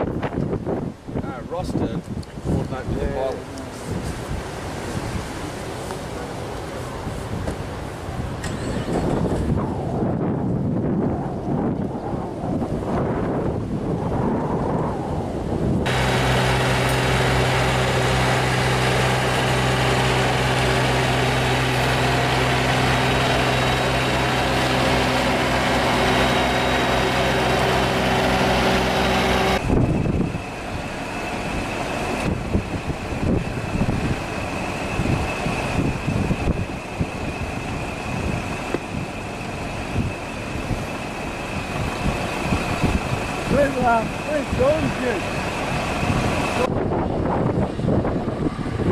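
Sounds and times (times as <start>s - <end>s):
heavy truck rumbling: 15.5s - 48.9s
truck engine humming: 15.8s - 48.9s.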